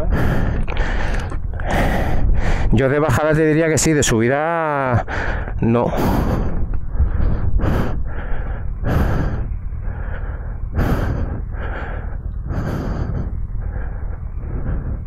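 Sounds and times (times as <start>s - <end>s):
person breathing heavily: 0.0s - 2.8s, 4.9s - 15.0s
loud low rumble: 5.0s - 15.0s.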